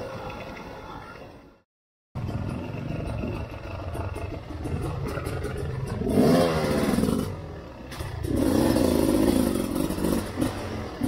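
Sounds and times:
knocks and rattles over rough ground: 2.2 - 10.7
motorcycle engine revving: 2.2 - 11.0.

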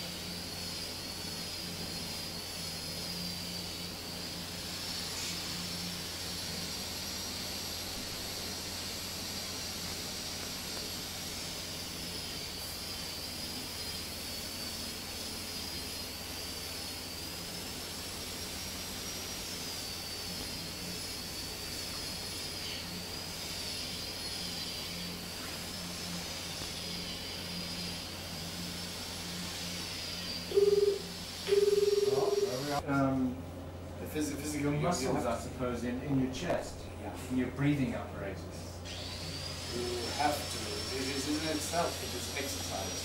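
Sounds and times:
faint wavering high whine: 0.0 - 43.0
loud steady tone: 30.2 - 32.8.

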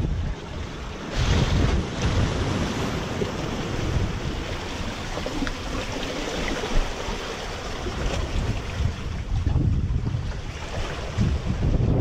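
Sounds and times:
ocean surf against rocks: 0.0 - 12.0
wind buffeting microphone: 0.0 - 12.0.

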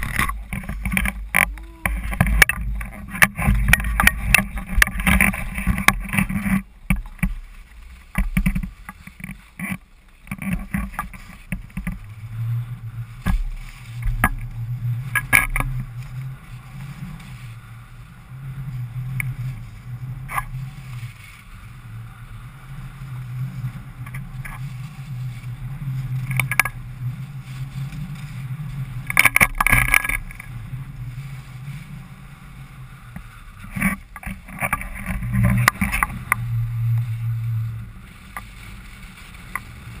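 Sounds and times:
skis scraping over snow: 0.0 - 40.0
sharp knocks and clicks: 8.1 - 12.0
rushing air rumble: 11.0 - 40.0.

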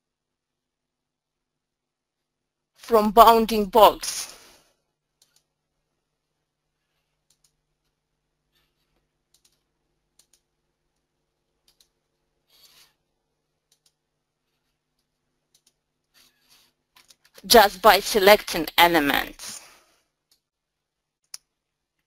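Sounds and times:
computer mouse clicks: 5.2 - 5.5, 7.2 - 8.0, 9.3 - 10.5, 11.6 - 13.0, 13.7 - 14.0, 14.9 - 15.8.

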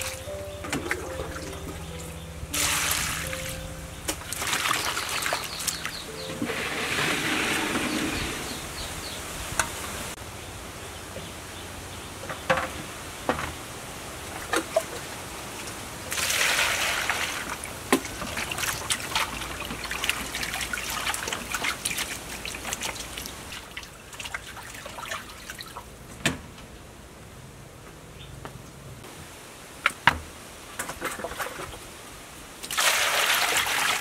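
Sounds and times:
water splashing and dripping: 0.0 - 8.6, 14.3 - 26.0, 32.6 - 34.0
burst of water: 2.5 - 3.6.

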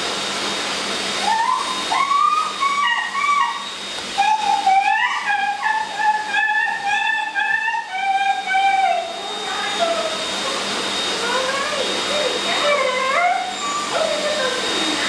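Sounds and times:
grooming dryer blowing air: 0.0 - 15.0.

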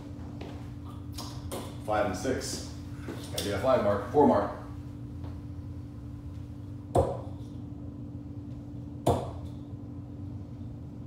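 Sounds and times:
darts striking dartboard: 6.9 - 7.3, 9.0 - 9.5.

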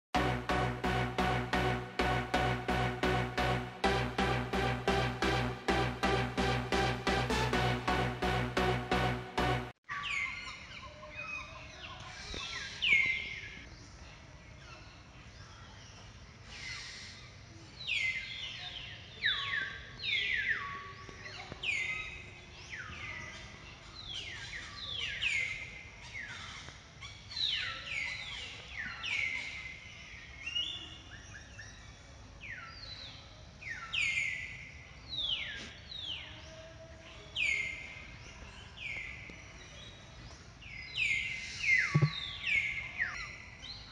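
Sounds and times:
birds chirping: 37.3 - 43.9.

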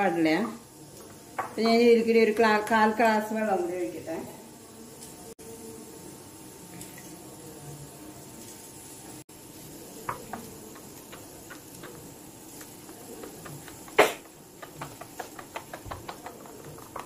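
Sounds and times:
fingers tapping glass bowl: 10.1 - 12.1, 12.7 - 17.0.

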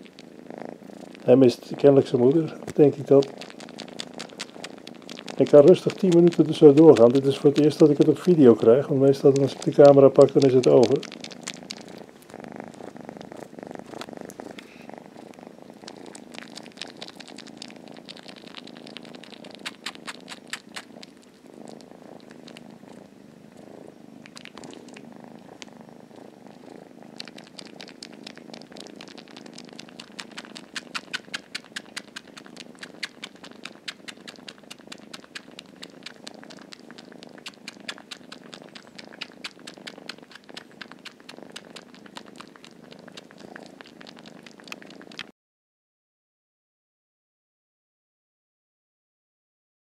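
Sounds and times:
kitten purring: 0.0 - 45.4
wet smacking clicks of suckling: 2.6 - 14.8, 15.8 - 22.6, 24.2 - 25.7, 27.1 - 45.3.

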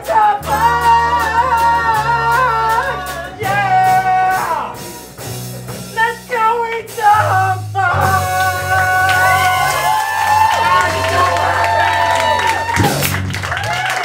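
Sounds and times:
held bass line: 0.0 - 14.0
live band playing: 0.0 - 14.0
person singing long notes: 6.1 - 10.0.

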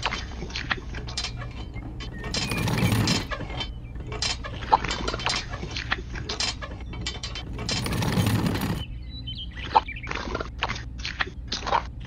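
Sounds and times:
scraping noise: 1.3 - 5.3, 7.1 - 8.9.

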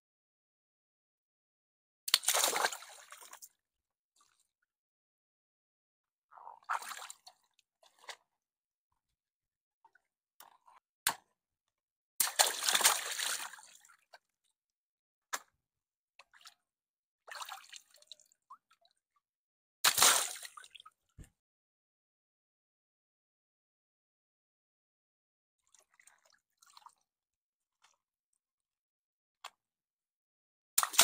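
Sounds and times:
water splashing in pool: 2.1 - 3.2, 12.2 - 13.6, 19.8 - 20.6.

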